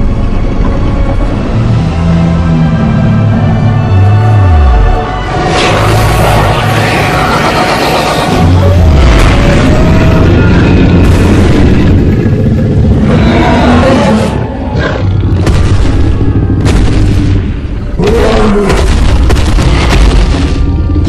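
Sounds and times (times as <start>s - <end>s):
deep rumbling dinosaur growls: 0.0s - 21.0s
dramatic film music: 0.0s - 21.0s
heavy booming footfalls: 15.4s - 20.9s.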